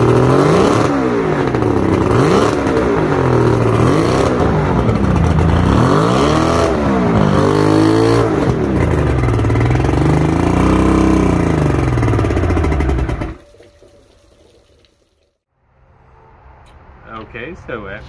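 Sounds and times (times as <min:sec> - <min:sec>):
outboard motor revving: 0:00.0 - 0:13.4.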